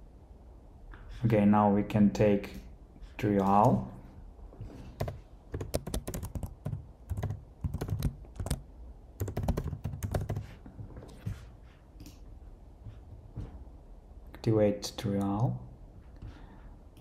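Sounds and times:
typing on a computer keyboard: 5.0s - 10.5s.

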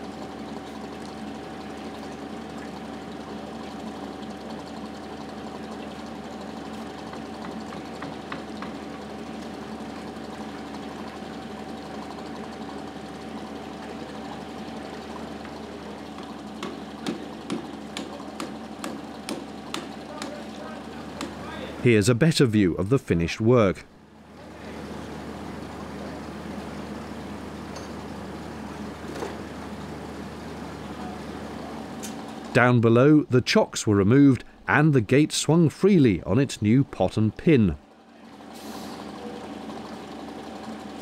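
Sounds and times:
engine running steadily: 0.0s - 41.0s
sharp knocks: 7.1s - 8.8s, 16.6s - 20.4s.

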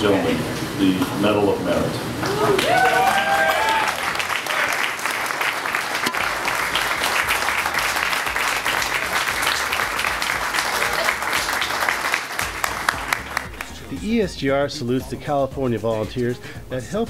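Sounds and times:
audience applauding: 2.2s - 13.9s.

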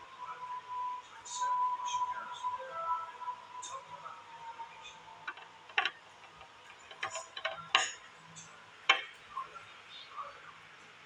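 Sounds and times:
nails clicking on glass bottle: 5.3s - 8.0s, 8.9s - 9.2s.

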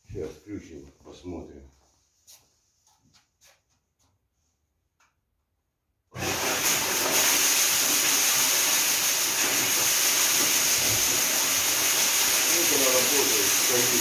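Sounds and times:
grain churning hiss: 6.2s - 14.0s.

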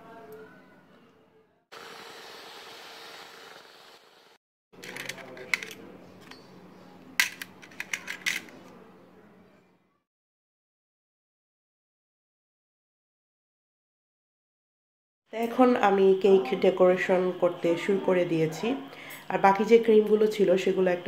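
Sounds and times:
electric hand mixer whirring: 1.8s - 4.1s.

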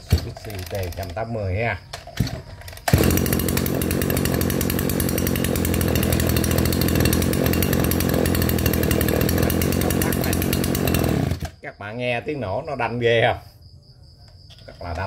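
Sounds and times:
brushcutter engine running: 2.8s - 11.6s.

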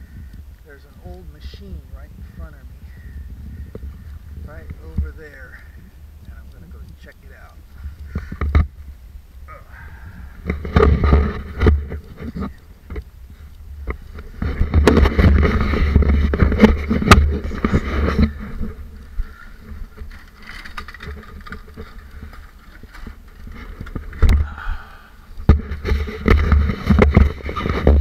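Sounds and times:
wind buffeting microphone: 0.0s - 28.0s
camera handling knocks and rustling: 10.4s - 13.0s, 13.9s - 18.8s, 25.4s - 28.0s.

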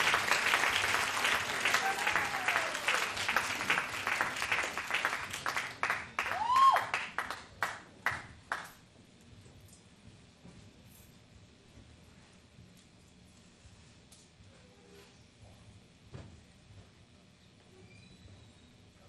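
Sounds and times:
audience applause: 0.0s - 8.7s.

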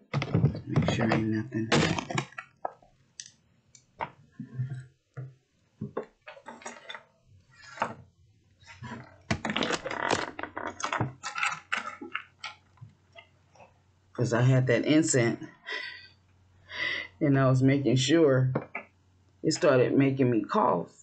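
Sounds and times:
objects moved on desk: 5.8s - 8.0s.

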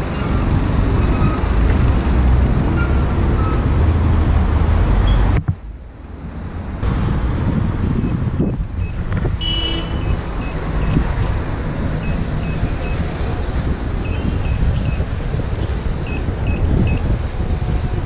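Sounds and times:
street traffic: 0.0s - 18.0s
wind buffeting microphone: 6.2s - 18.0s.

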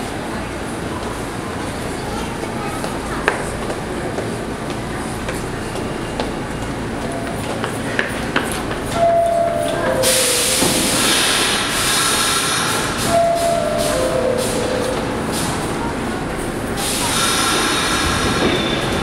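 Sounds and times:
air hissing from train: 10.0s - 19.0s.

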